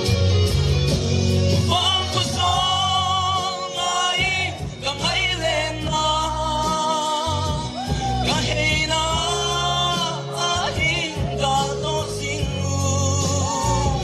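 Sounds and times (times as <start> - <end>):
live band music: 0.0 - 14.0
man singing: 1.5 - 14.0.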